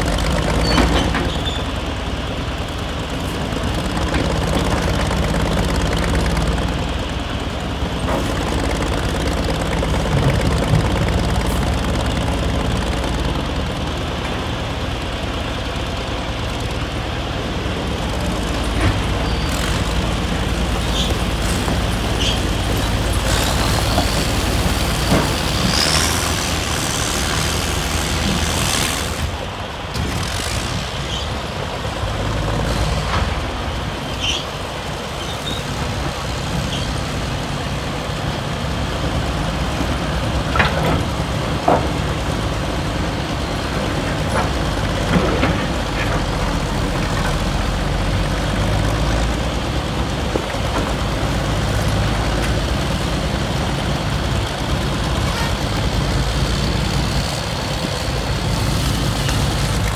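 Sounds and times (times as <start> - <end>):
diesel construction machine running: 0.0 - 59.9.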